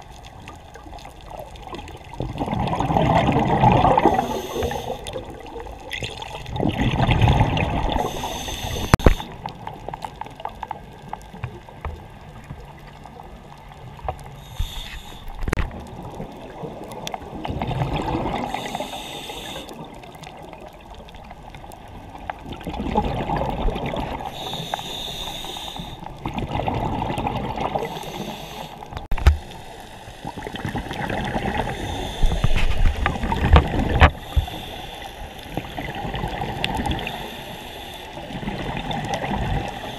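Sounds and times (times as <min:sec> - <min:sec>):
exhaled air bubbling underwater: 0:00.0 - 0:39.9
scuba regulator inhale hiss: 0:04.0 - 0:05.3, 0:07.9 - 0:09.4, 0:14.4 - 0:15.5, 0:18.4 - 0:19.8, 0:24.2 - 0:26.1, 0:27.8 - 0:31.0, 0:31.6 - 0:33.0, 0:34.1 - 0:35.9, 0:36.9 - 0:38.3, 0:39.6 - 0:39.9.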